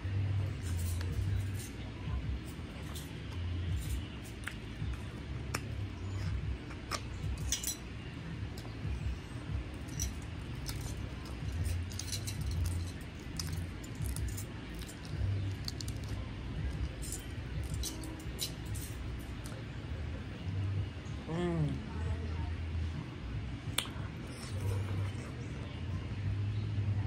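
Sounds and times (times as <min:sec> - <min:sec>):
steady low rumble: 0:00.0 - 0:27.0
metal bangles jingling: 0:06.9 - 0:08.0, 0:09.7 - 0:19.4.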